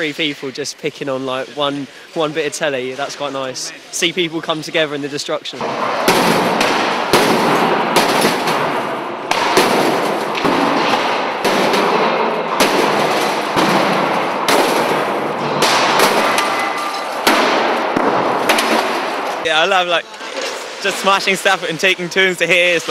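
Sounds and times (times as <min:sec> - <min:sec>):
sledgehammer blows on sheet metal: 0:05.6 - 0:19.4
crashing din of metal and debris: 0:05.6 - 0:21.3.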